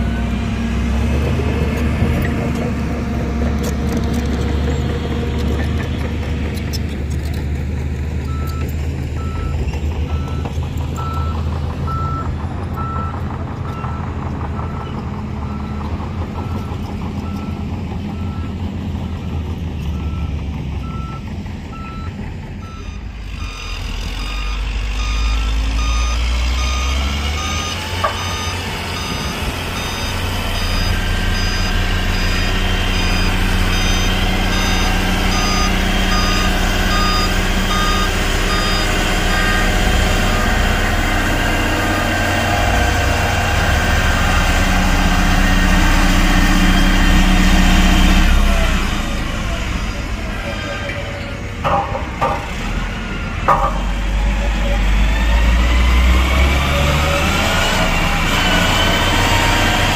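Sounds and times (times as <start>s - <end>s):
diesel machinery running: 0.0s - 59.9s
reversing alarm beeping: 8.3s - 14.9s, 19.3s - 49.2s
higher-pitched reversing alarm: 22.6s - 49.1s.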